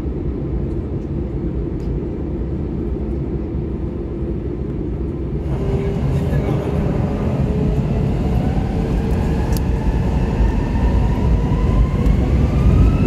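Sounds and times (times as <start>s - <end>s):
jet engines low rumble: 0.0s - 13.0s.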